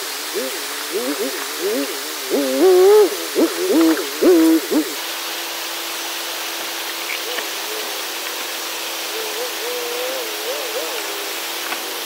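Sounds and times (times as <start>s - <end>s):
faint steady hum: 0.0s - 12.0s
person saying ooh: 0.4s - 5.0s, 9.1s - 11.4s.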